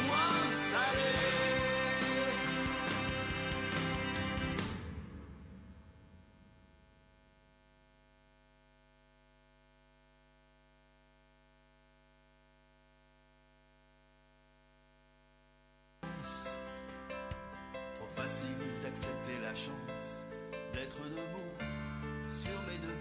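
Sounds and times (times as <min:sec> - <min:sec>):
song: 0:00.0 - 0:05.0
faint steady hum: 0:05.0 - 0:16.6.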